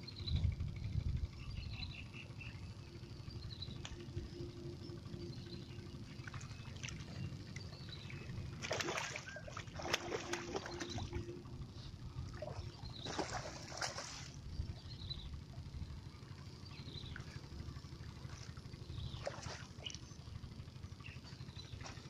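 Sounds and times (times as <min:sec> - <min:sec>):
fish splashing at surface: 0:08.6 - 0:11.0, 0:13.0 - 0:14.4.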